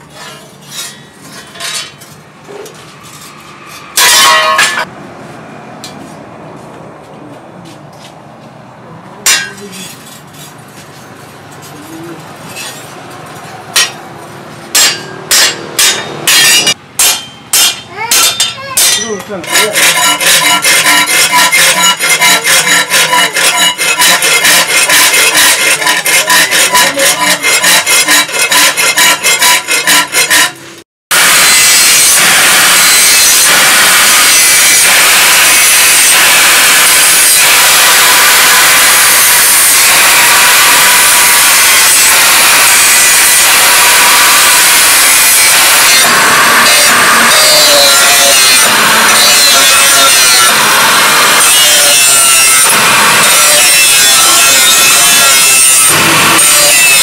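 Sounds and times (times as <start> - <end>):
file rasping on steel blade: 2.6 - 4.9, 12.5 - 12.9, 14.7 - 57.0
angle grinder grinding: 2.7 - 4.9, 14.8 - 16.8, 17.6 - 57.0
blade ringing: 4.0 - 4.9, 14.8 - 30.6.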